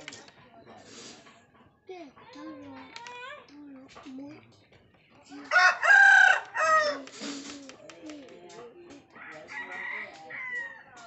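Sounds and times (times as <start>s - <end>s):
rooster crowing: 5.5s - 7.1s.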